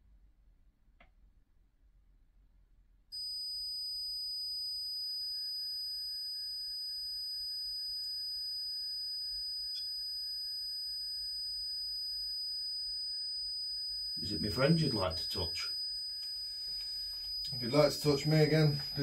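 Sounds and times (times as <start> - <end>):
high-pitched electronic tone: 14.2 - 15.8, 16.8 - 19.0.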